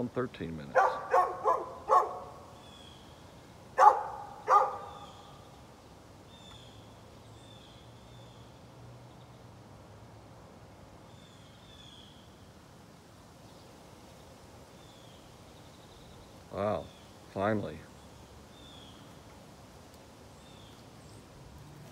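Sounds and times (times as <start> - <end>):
dog barking: 0.7 - 2.4, 3.8 - 5.1.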